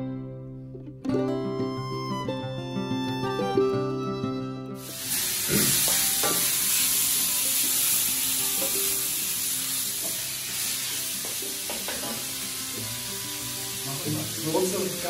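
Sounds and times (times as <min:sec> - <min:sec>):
meat sizzling in a wok: 0:04.8 - 0:15.0.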